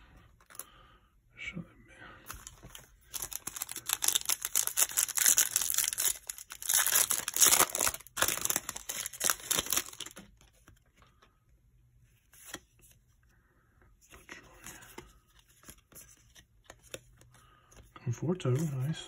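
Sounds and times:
foil wrapper tearing and crinkling: 3.1 - 10.2.

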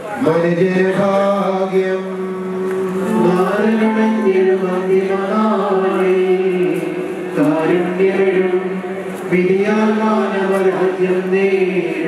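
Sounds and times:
voices chanting a slow hymn: 0.2 - 12.0.

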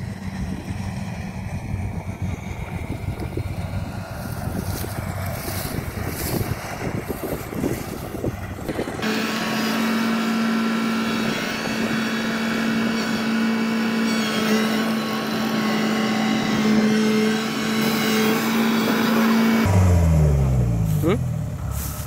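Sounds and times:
wind buffeting microphone: 0.0 - 9.0
combine harvester engine hum: 0.0 - 22.0.

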